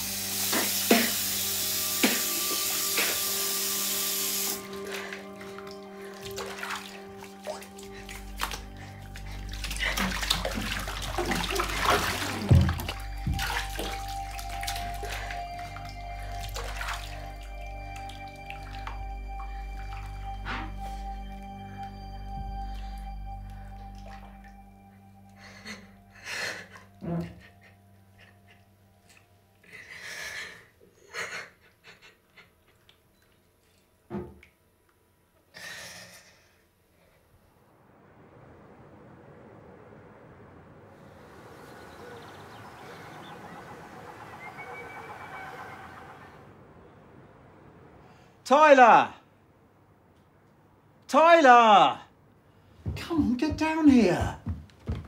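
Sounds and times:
bath water splashing: 0:00.0 - 0:28.6
soft background music: 0:00.0 - 0:30.3, 0:41.5 - 0:46.6
distant city traffic rumble: 0:37.3 - 0:48.5.

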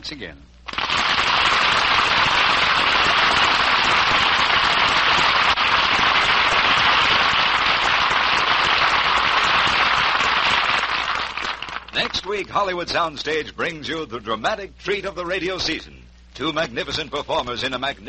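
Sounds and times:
audience applauding: 0:00.7 - 0:12.3.

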